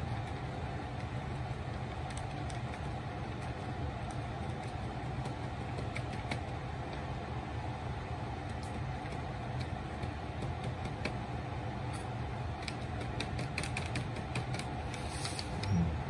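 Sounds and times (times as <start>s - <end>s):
low mechanical hum: 0.0s - 16.0s
paintbrush tapping on paper: 9.0s - 11.2s.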